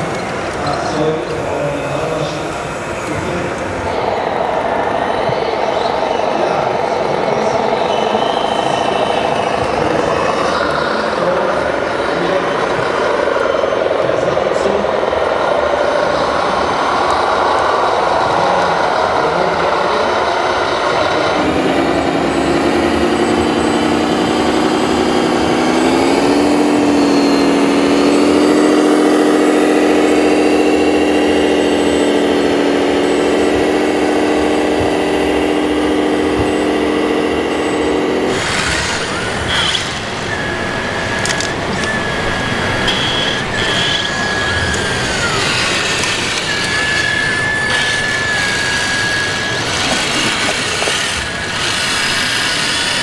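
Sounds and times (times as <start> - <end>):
high whine of model machines: 0.0 - 53.0
model truck motors humming: 0.0 - 53.0
clicks: 41.0 - 48.0.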